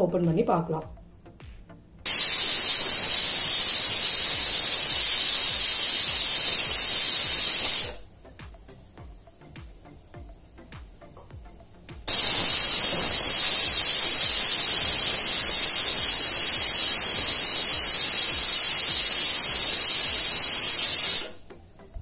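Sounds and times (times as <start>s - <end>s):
pressure cooker whistling: 2.1s - 8.0s, 12.1s - 21.4s.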